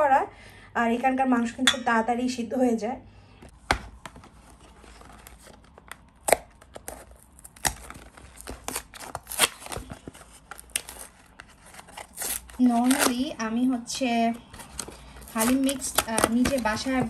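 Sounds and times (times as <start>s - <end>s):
paper rustling: 4.0s - 6.0s
cardboard flap tearing: 4.9s - 13.3s.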